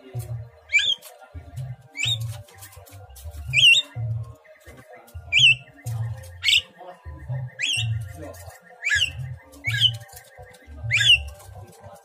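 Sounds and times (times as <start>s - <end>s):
bird whistled calls: 0.7s - 1.1s, 2.0s - 2.3s, 3.5s - 4.0s, 5.3s - 11.5s.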